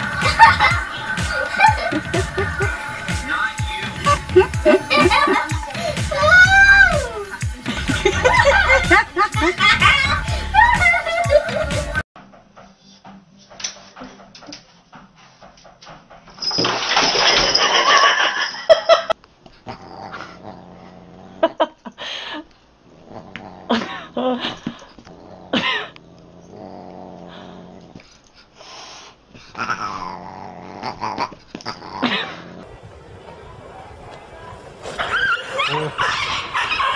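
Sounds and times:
growling: 19.6 - 21.7, 22.8 - 24.2, 24.9 - 28.2, 29.4 - 32.7.

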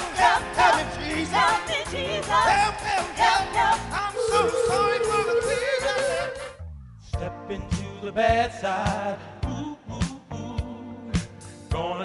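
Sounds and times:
instrumental accompaniment: 0.0 - 8.5
man singing wordless vocal runs: 4.0 - 6.6.

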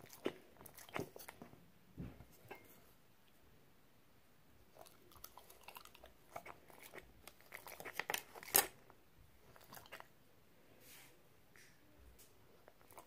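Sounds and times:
dog chewing with mouth clicks: 0.0 - 1.6, 4.7 - 8.6, 9.4 - 10.1.

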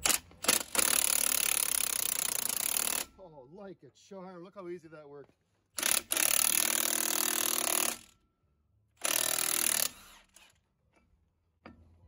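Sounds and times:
impact wrench hammering: 5.8 - 8.1.

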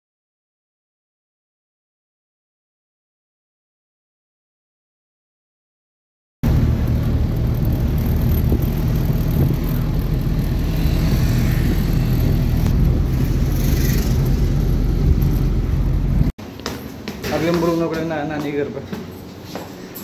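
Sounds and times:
low engine drone: 6.4 - 16.4
tyre and road noise: 6.4 - 20.0.

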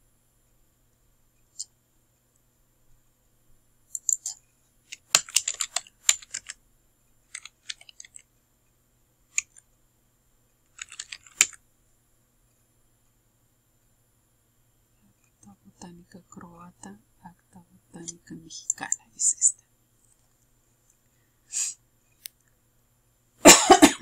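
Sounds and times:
typing on computer keyboard: 3.9 - 6.6, 7.3 - 8.3, 9.3 - 9.6, 10.7 - 11.6.

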